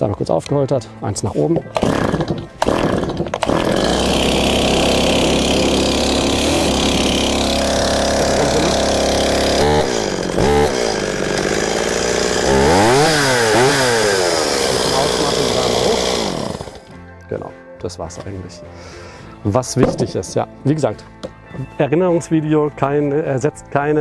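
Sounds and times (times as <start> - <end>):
chainsaw engine starting and running: 1.6 - 17.0
chainsaw revving: 1.7 - 16.9.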